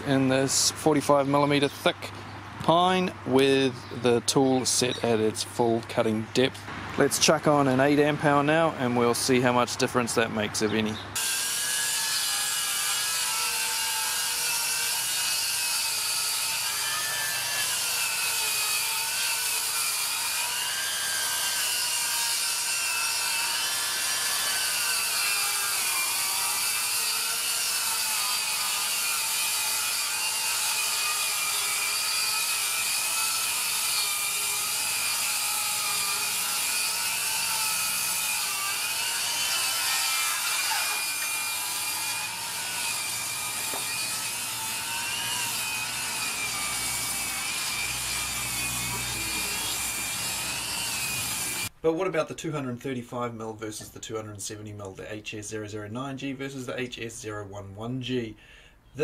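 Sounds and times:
circular saw cutting wood: 11.2s - 51.7s.

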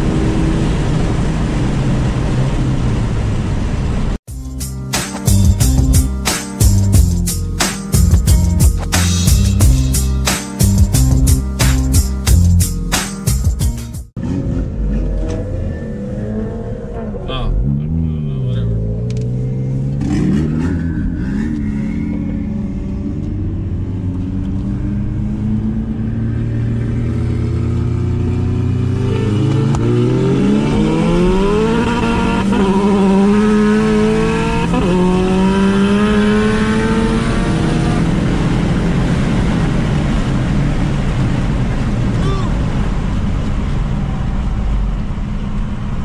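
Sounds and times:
car engine accelerating: 14.1s - 46.0s
rushing noise: 20.1s - 23.7s.

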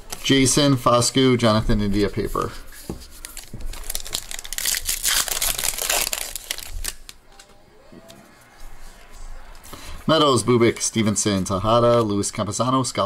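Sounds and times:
foil wrapper tearing and crinkling: 3.2s - 7.2s.

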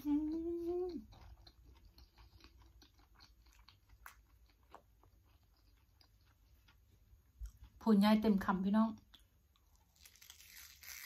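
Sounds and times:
woman humming mmm: 0.0s - 1.1s
quiet chewing with mouth smacks: 0.0s - 7.8s.

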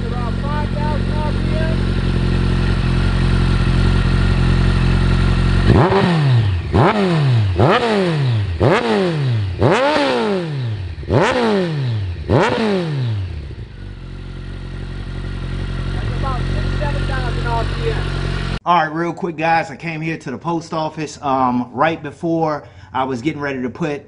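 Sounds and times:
motorcycle engine idling and revving: 0.0s - 18.6s.

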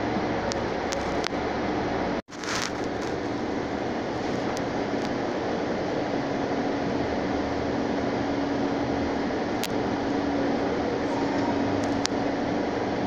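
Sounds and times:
steady low hum: 0.0s - 13.0s
vehicle cabin rumble and hiss: 0.0s - 13.0s
brief rustle: 2.3s - 3.3s.

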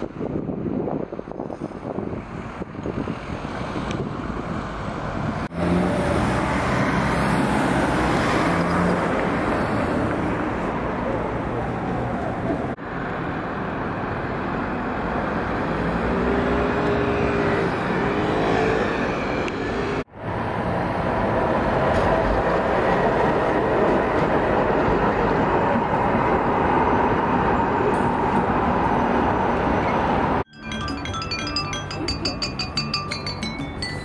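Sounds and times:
street traffic: 0.0s - 34.0s
tram whining on rails: 13.8s - 32.6s.

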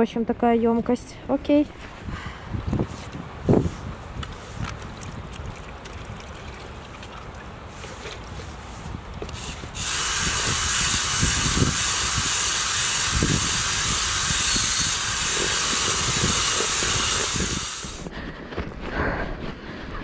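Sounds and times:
paddle knocking and churning in bucket: 4.2s - 8.4s
cordless drill with paddle mixer: 9.3s - 18.1s.

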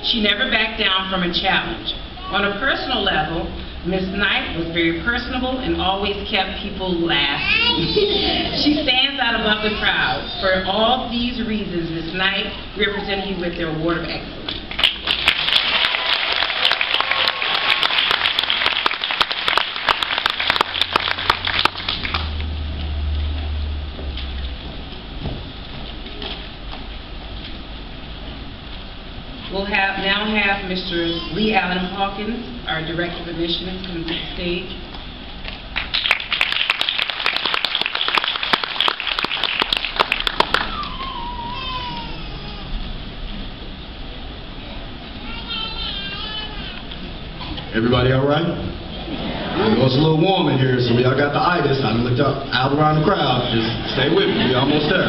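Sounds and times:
audience applauding: 14.7s - 22.5s, 35.8s - 41.7s.

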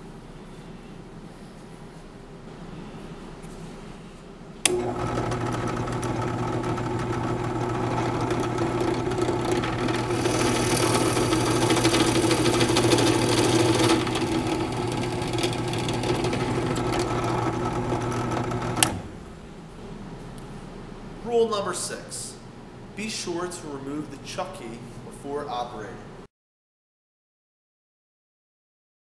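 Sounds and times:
drill press motor humming: 4.6s - 19.7s
drill bit cutting wood: 4.7s - 19.1s.

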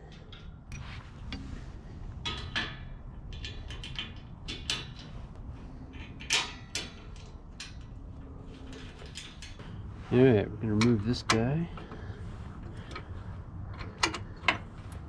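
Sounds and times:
metal bracket clicks and rattles: 0.0s - 1.6s, 2.2s - 9.8s, 12.7s - 15.0s.

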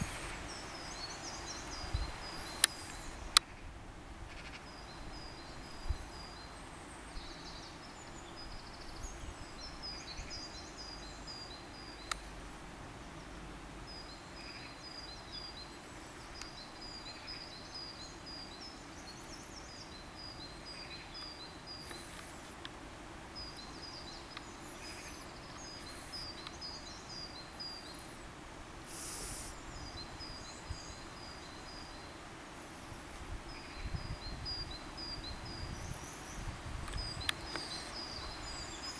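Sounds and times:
outdoor background hum: 0.0s - 38.9s
songbird chirping: 0.0s - 38.9s
brief hiss: 28.8s - 29.6s.

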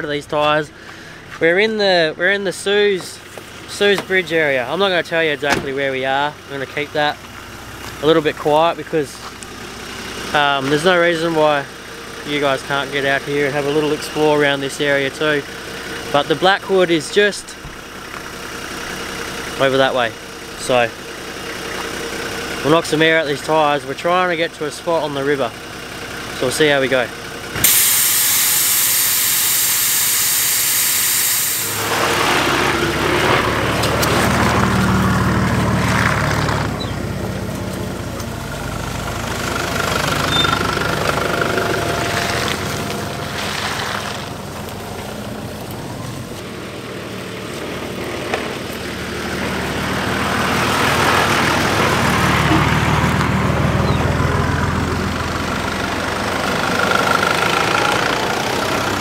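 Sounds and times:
car engine running: 0.0s - 59.0s
air hissing from tyre: 27.6s - 32.3s.

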